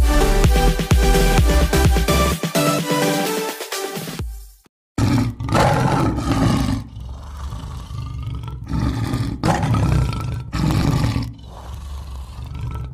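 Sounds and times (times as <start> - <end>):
lion roaring: 5.0 - 12.9.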